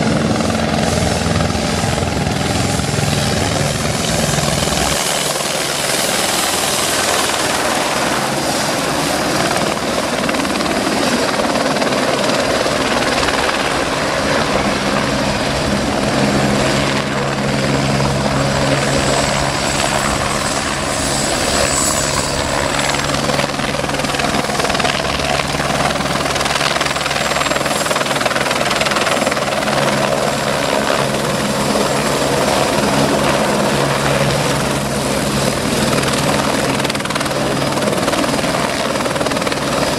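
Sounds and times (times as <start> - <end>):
helicopter rotor and turbine: 0.0 - 39.9.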